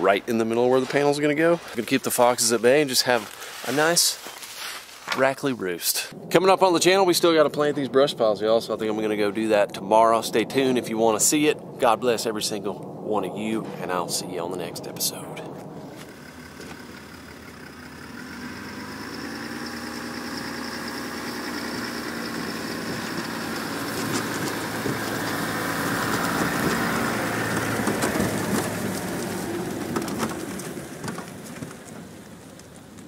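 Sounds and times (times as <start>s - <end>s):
pickup truck driving past: 15.8s - 33.0s.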